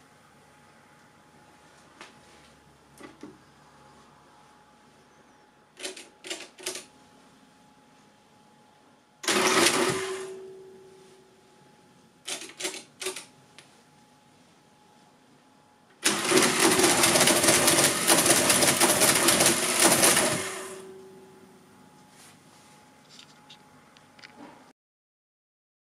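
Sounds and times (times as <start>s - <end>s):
calculator mechanism cycling: 16.0s - 20.9s
rapid dense mechanical clatter: 16.1s - 20.4s.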